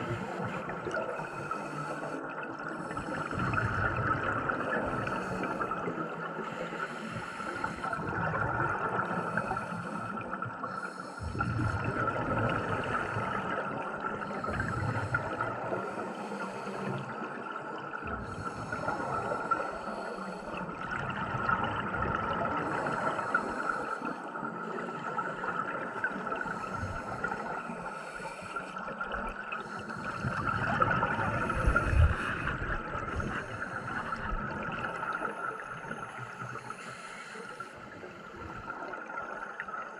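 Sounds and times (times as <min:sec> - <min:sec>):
regulator inhale hiss: 0:00.0 - 0:02.2, 0:04.9 - 0:08.1, 0:09.1 - 0:11.8, 0:14.2 - 0:17.3, 0:18.2 - 0:20.6, 0:22.6 - 0:29.0, 0:29.6 - 0:39.6
rumbling bubbles: 0:02.4 - 0:06.6, 0:07.2 - 0:16.4, 0:17.0 - 0:37.0.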